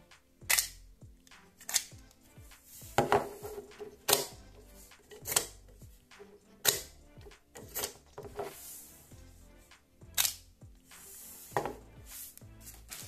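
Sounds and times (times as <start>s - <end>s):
background music: 0.0s - 13.0s
plastic toy clicks and snaps: 0.4s - 2.2s, 4.0s - 4.4s, 5.0s - 5.6s, 6.6s - 7.0s, 10.1s - 10.4s.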